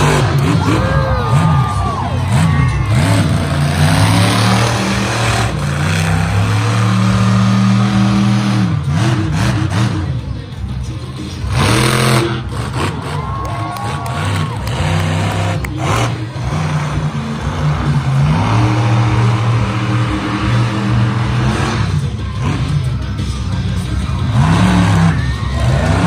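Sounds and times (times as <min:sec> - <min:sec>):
truck engine revving: 0:00.0 - 0:26.0.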